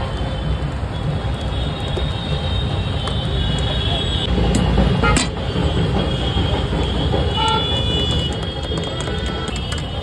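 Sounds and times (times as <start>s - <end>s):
traffic rumble: 0.0s - 10.0s.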